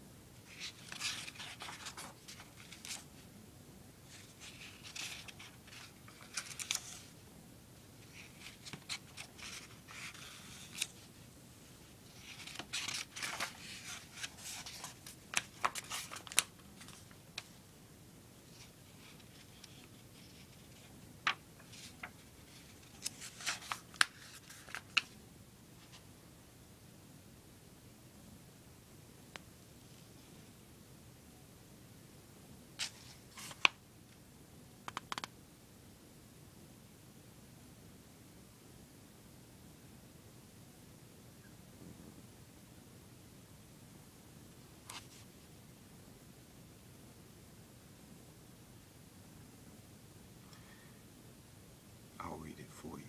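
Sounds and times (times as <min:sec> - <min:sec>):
book pages turning: 0:00.5 - 0:03.2, 0:04.1 - 0:07.1, 0:08.0 - 0:11.1, 0:12.1 - 0:17.5, 0:18.5 - 0:25.2, 0:32.8 - 0:33.8, 0:44.9 - 0:45.3.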